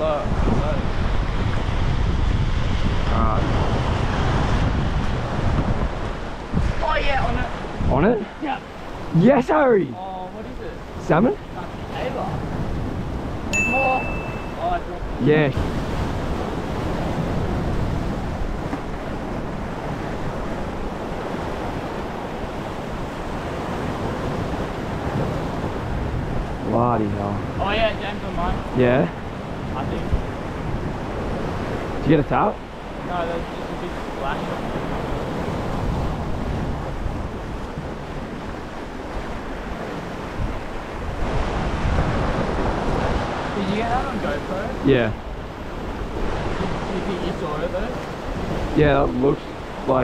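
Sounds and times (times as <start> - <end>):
ocean surf against rocks: 0.0 - 50.0
wind on microphone: 0.0 - 50.0.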